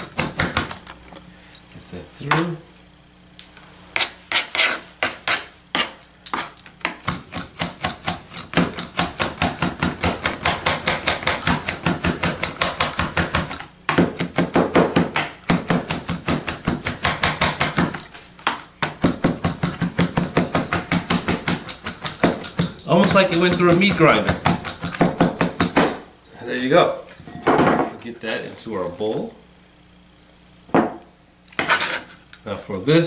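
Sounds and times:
knife chopping on cutting board: 0.0s - 0.8s, 4.0s - 26.0s.

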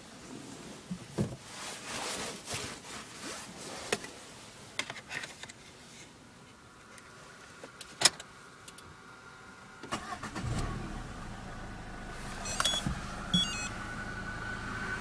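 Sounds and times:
rustling and rubbing: 0.2s - 6.2s.

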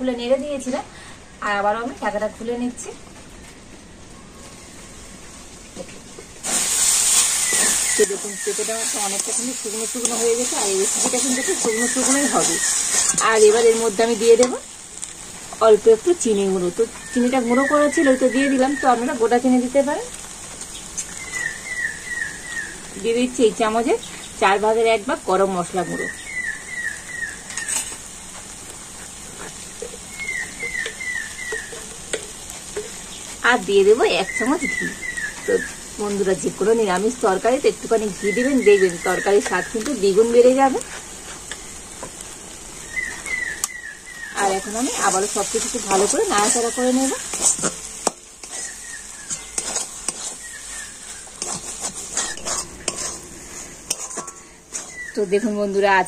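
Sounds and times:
food sizzling in a metal pan: 0.0s - 56.0s
metal spatula scraping wok: 6.4s - 14.5s, 27.4s - 35.5s, 44.4s - 55.8s.

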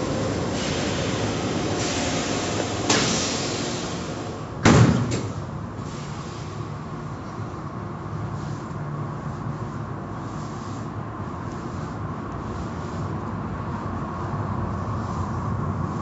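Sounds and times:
car wash machinery rushing: 0.0s - 5.5s.

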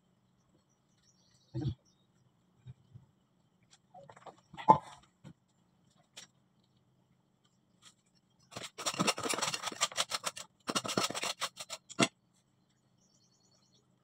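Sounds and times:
hand scraping dirt and pipework: 7.5s - 12.3s.

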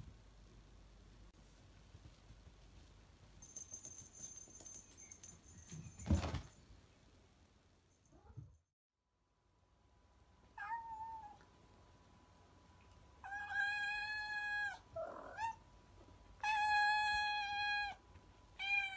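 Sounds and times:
cat meowing: 10.6s - 11.4s, 18.6s - 18.9s.

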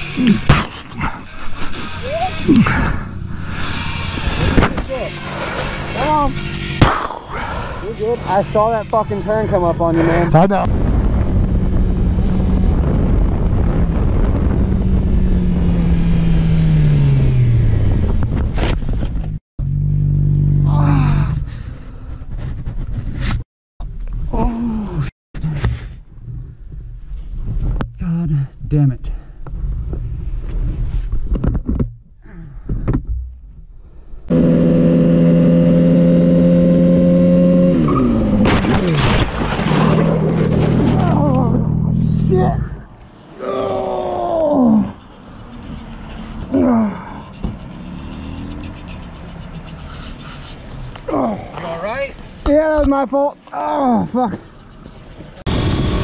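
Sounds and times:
loud rushing noise: 1.5s - 14.6s
wind rush: 7.1s - 19.3s.

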